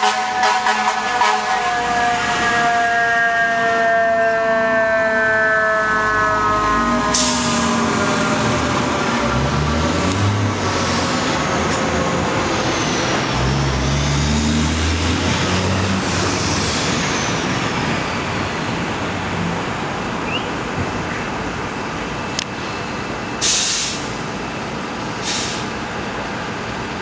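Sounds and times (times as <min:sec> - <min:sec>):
siren steady tone: 0:00.0 - 0:09.6
siren wailing: 0:00.0 - 0:09.9
city traffic: 0:00.0 - 0:27.0
diesel engine rumbling: 0:05.8 - 0:27.0.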